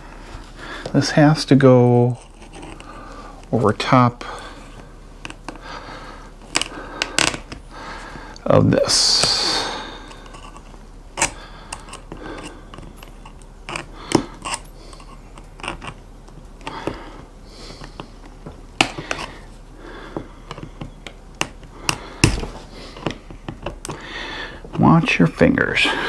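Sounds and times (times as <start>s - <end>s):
plastic parts clicking together: 6.4s - 7.6s, 10.2s - 16.0s.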